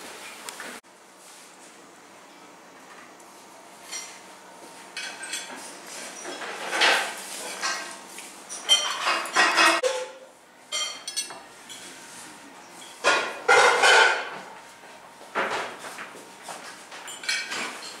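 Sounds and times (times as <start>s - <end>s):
dishes and cutlery clattering: 5.0s - 11.8s, 12.8s - 14.5s, 16.9s - 18.0s.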